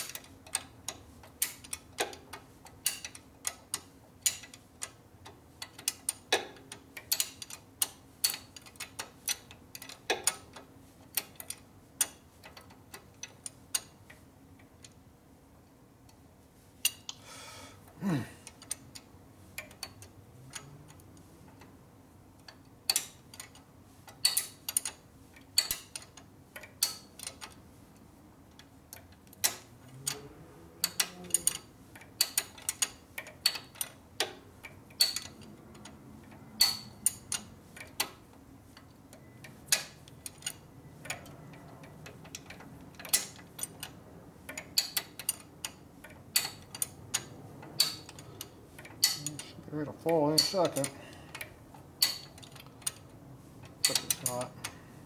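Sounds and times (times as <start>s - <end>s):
metal wrench clicking on bolt: 0.0s - 5.0s, 5.6s - 10.6s, 22.4s - 25.0s, 25.6s - 27.6s, 28.9s - 35.9s, 36.6s - 38.2s, 39.6s - 43.9s, 44.5s - 49.6s, 50.3s - 53.1s, 53.8s - 54.5s.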